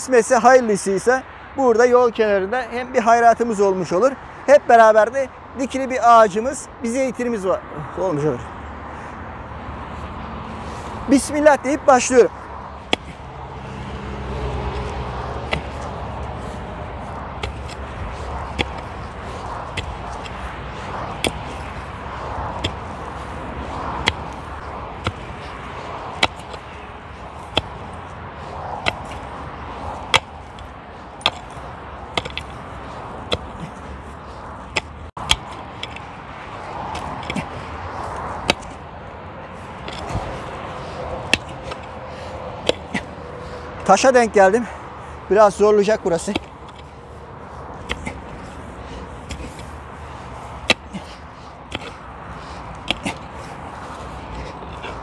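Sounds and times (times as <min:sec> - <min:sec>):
road traffic hum: 0:00.0 - 0:55.0
steady background noise: 0:00.0 - 0:55.0
pickaxe striking ground: 0:12.9 - 0:13.2, 0:15.4 - 0:15.9, 0:17.4 - 0:17.8, 0:18.4 - 0:20.4, 0:21.1 - 0:21.8, 0:22.4 - 0:22.9, 0:24.0 - 0:26.7, 0:27.4 - 0:27.9, 0:28.8 - 0:29.3, 0:30.1 - 0:32.6, 0:33.2 - 0:33.9, 0:34.7 - 0:36.0, 0:36.9 - 0:37.6, 0:38.2 - 0:38.8, 0:39.8 - 0:40.4, 0:41.3 - 0:41.8, 0:42.6 - 0:43.1, 0:47.8 - 0:48.4, 0:49.2 - 0:49.6, 0:50.6 - 0:51.1, 0:51.7 - 0:52.0, 0:52.8 - 0:53.3.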